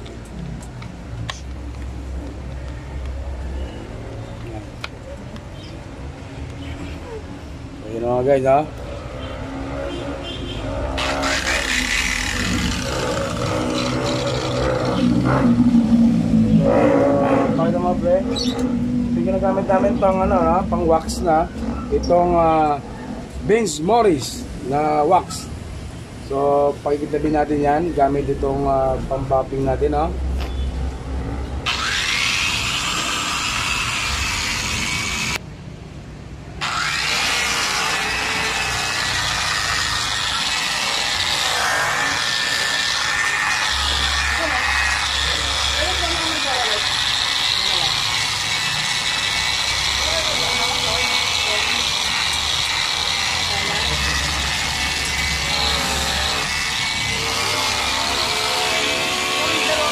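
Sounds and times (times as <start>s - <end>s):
angle grinder motor whine: 8.7s - 22.4s, 31.2s - 35.4s, 36.6s - 59.9s.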